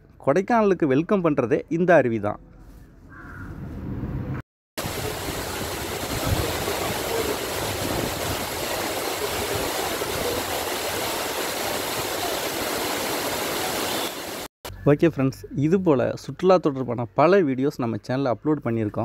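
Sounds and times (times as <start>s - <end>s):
waterfall roaring: 4.8s - 14.5s.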